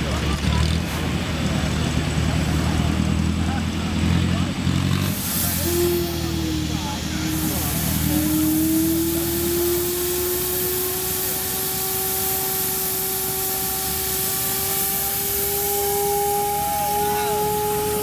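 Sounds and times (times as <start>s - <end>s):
steam hissing: 0.0s - 18.0s
whistling tone rising in pitch: 8.0s - 18.0s.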